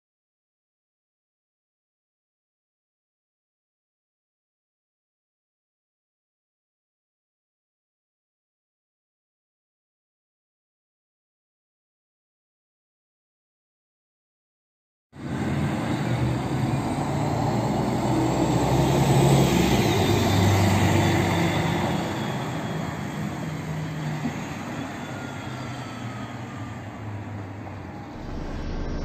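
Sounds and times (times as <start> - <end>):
bus driving past: 15.2 - 29.0.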